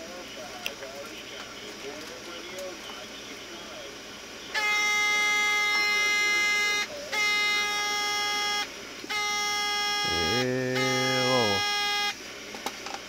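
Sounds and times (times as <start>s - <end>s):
radio speaker steady tone: 10.0s - 11.8s.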